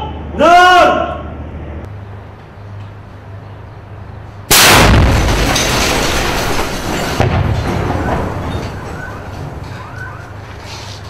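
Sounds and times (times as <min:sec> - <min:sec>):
rocket launcher blast indoors: 0:04.5 - 0:07.7.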